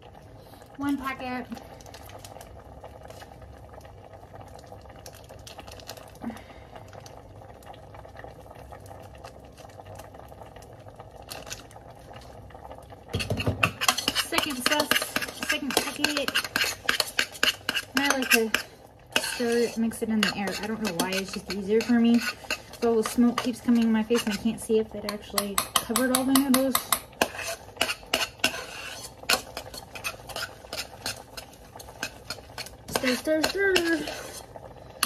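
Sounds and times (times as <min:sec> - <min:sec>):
utensil clattering in steel pot: 0:13.1 - 0:34.5.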